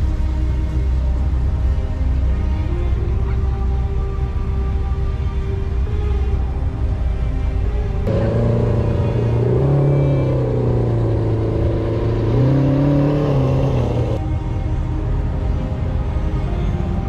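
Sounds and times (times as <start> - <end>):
music: 0.0 - 17.0
car engine at low revs: 8.0 - 14.2.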